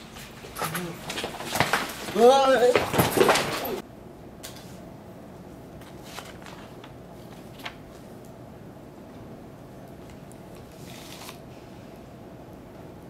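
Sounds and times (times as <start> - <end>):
paper rustling: 5.8 - 8.1, 10.6 - 11.4.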